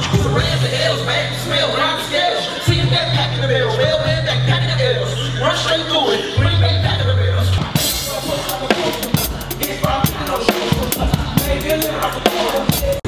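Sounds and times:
drum kit playing: 0:00.0 - 0:01.3, 0:06.4 - 0:13.0
band music: 0:00.0 - 0:13.0.

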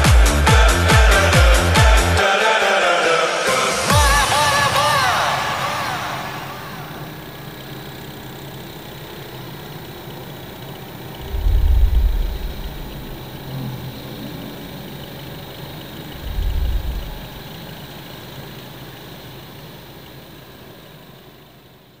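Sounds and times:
tractor engine running: 0:03.7 - 0:22.0
deep rumble bursts: 0:11.1 - 0:17.9.

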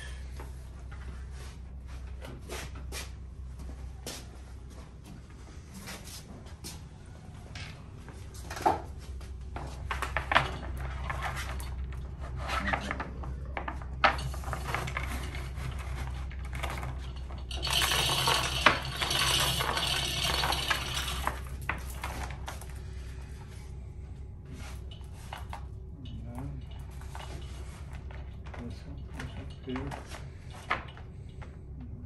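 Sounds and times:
steel chain rattling: 0:16.5 - 0:22.4.

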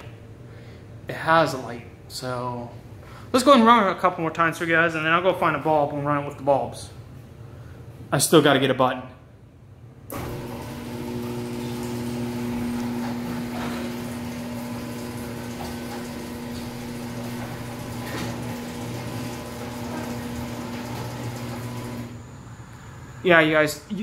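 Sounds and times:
garage door opener motor hum: 0:10.1 - 0:22.4
garage door rattling: 0:11.4 - 0:22.2.

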